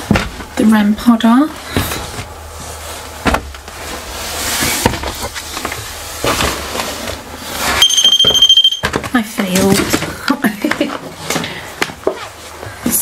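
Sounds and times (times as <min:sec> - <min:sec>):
footsteps on bare floor: 0:00.0 - 0:00.6
high-pitched electronic alarm tone: 0:07.8 - 0:08.9.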